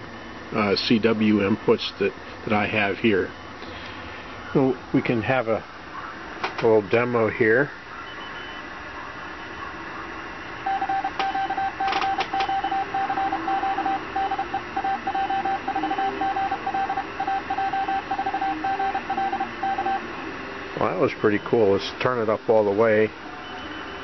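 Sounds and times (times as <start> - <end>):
morse code tone: 10.6 - 20.1, 23.3 - 24.0.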